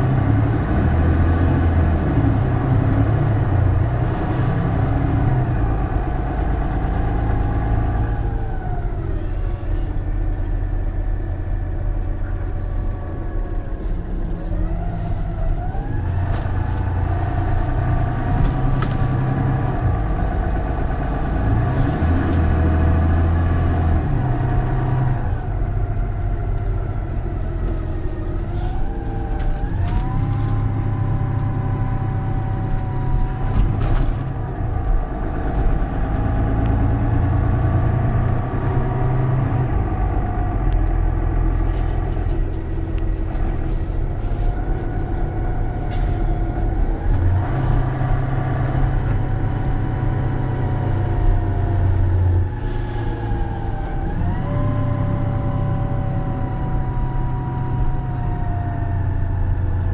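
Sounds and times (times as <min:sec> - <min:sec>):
bus engine accelerating with whine: 0:00.0 - 0:59.9.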